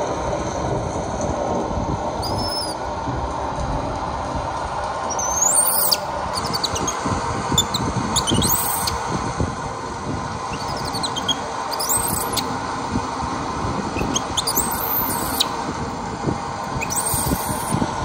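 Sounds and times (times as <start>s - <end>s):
steady rushing noise: 0.0s - 18.0s
baby monkey squealing: 5.1s - 7.0s, 7.6s - 9.0s, 10.5s - 12.5s, 14.0s - 15.5s, 16.8s - 17.8s.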